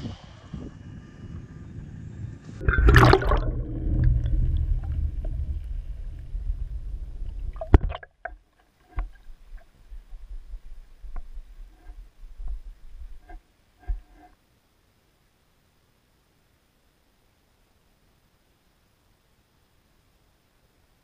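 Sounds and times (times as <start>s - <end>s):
fish splashing at surface: 2.6s - 4.2s
low rumble of churning water: 2.6s - 14.3s.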